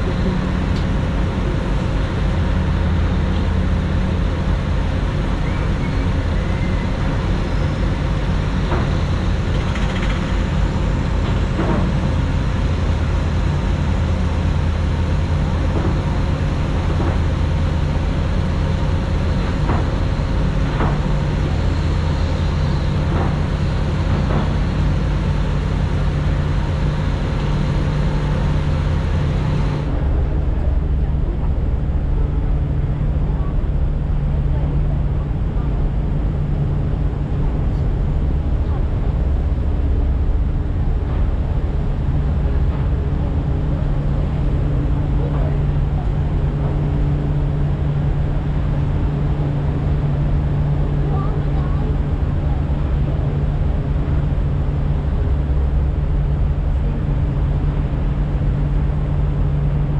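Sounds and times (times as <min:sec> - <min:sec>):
low engine drone: 0:00.0 - 0:59.9.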